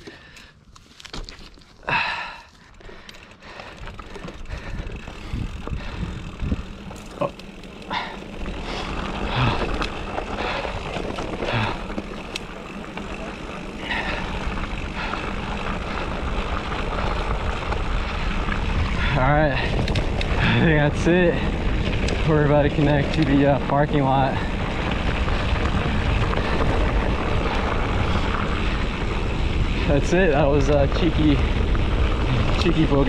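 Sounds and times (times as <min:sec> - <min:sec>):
bike knocks and rattles: 0:02.5 - 0:17.9
wind rushing over microphone: 0:03.9 - 0:07.0, 0:12.9 - 0:33.0.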